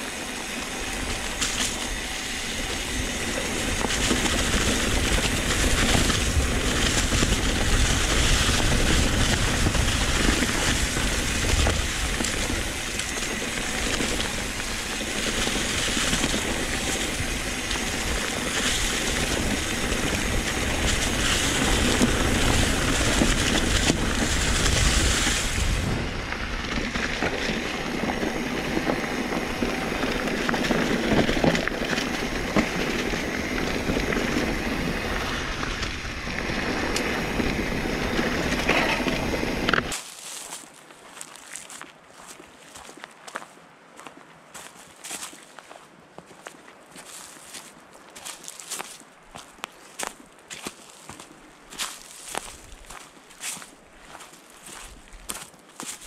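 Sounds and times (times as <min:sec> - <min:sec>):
bike tyres crunching over leaves and gravel: 0:00.0 - 0:56.0.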